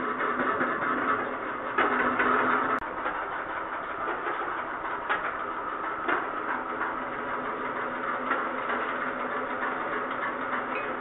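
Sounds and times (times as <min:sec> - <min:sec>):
washing machine tub spinning: 0:00.0 - 0:11.0.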